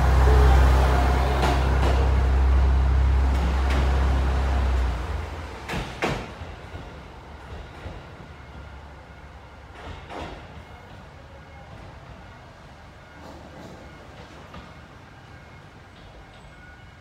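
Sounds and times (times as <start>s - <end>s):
train engine rumble: 0.0s - 17.0s
wheels clacking over rail joints: 0.2s - 2.5s.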